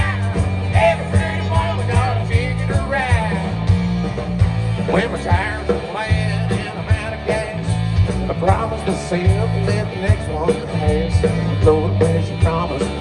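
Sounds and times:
bass guitar: 0.0 - 13.0
electric guitars: 0.0 - 13.0
steady drum beat: 0.0 - 13.0.

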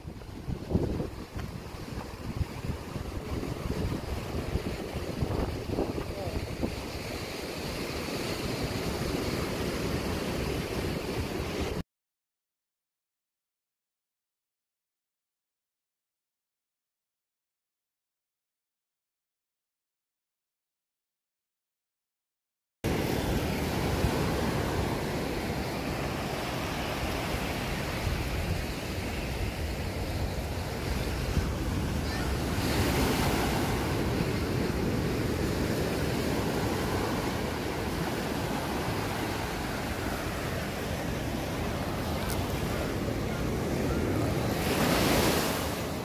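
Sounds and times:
small waves breaking on a beach: 0.0 - 11.8, 22.9 - 46.0
wind buffeting the microphone: 0.0 - 11.8, 23.0 - 46.0.

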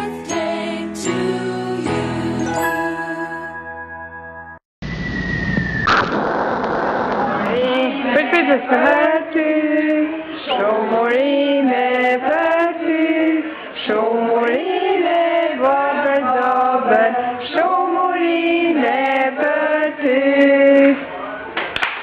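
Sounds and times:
family singing together: 0.0 - 3.5, 7.5 - 21.0
people clapping: 21.6 - 22.0.

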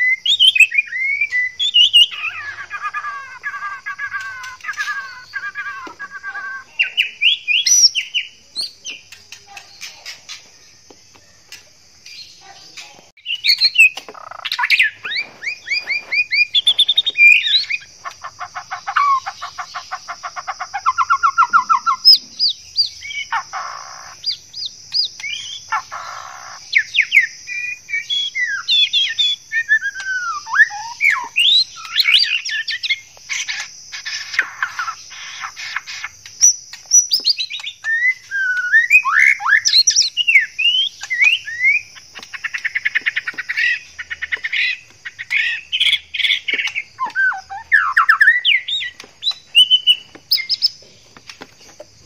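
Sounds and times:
bird singing whistled song: 0.0 - 12.3, 13.2 - 50.8
high-pitched hiss: 3.8 - 18.2
bird rattling trill: 13.3 - 19.9.

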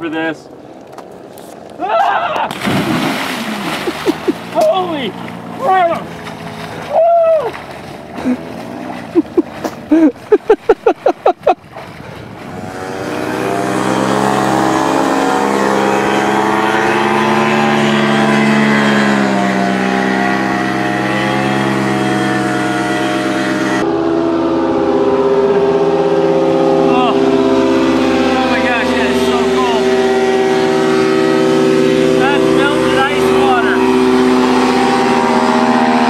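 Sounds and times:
engine drone: 2.5 - 36.0.

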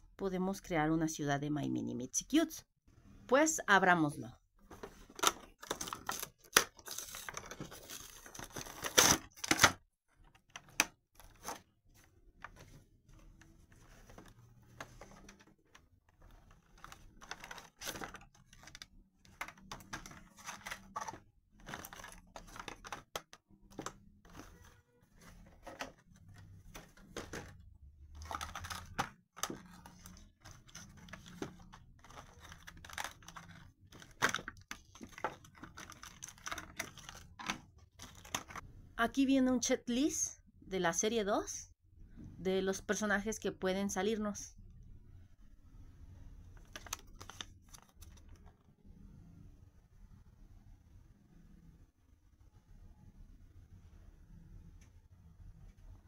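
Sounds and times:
plastic crinkling and clicking: 14.1 - 24.5, 28.2 - 38.6
plastic packaging cracking and tearing: 28.2 - 38.6.

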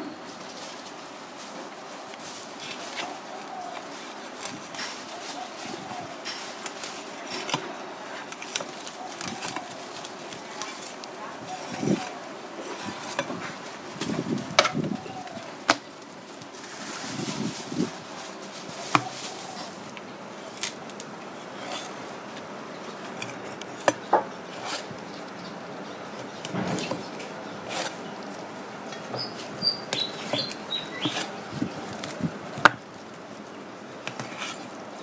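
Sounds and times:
high bird chirps: 28.9 - 31.3.

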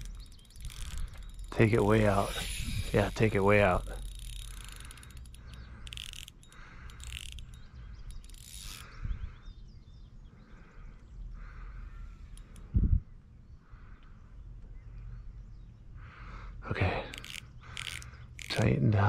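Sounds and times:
fishing reel clicking: 0.0 - 9.0, 11.8 - 12.7, 17.1 - 18.7
birds chirping: 0.0 - 19.0.

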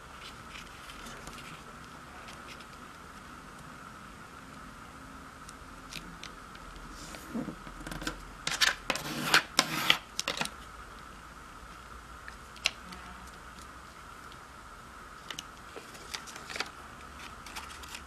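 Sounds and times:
stick scraping along paper fold: 6.9 - 10.1.

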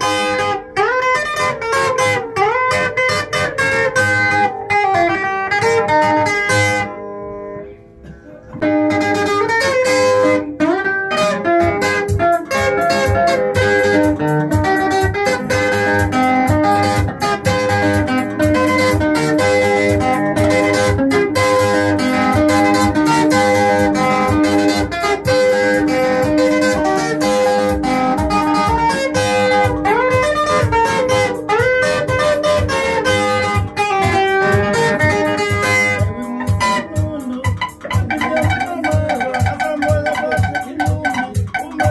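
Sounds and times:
plucked electric guitar: 0.0 - 41.9
steady drum beat: 11.4 - 41.9.

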